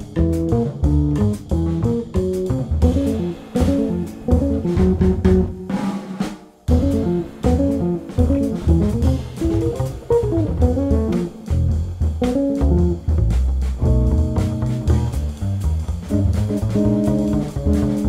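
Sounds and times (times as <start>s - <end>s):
upright bass: 0.0s - 5.8s, 6.7s - 18.0s
drums: 0.0s - 18.0s
electric guitar: 6.7s - 11.6s.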